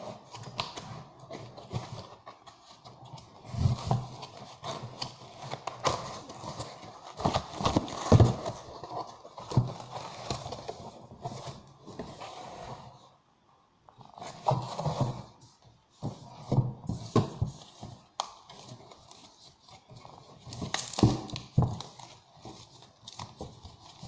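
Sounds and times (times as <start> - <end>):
cardboard knocking and scraping: 3.4 - 12.6, 14.2 - 18.7.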